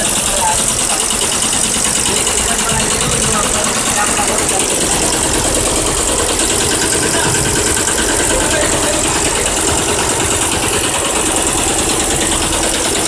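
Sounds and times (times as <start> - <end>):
embroidery machine rattling: 0.0 - 13.0.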